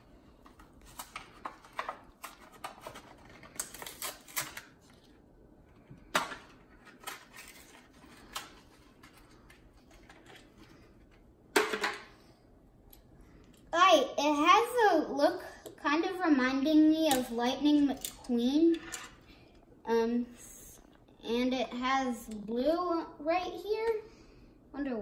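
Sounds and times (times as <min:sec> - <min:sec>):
plastic package being torn open: 0:00.8 - 0:05.1.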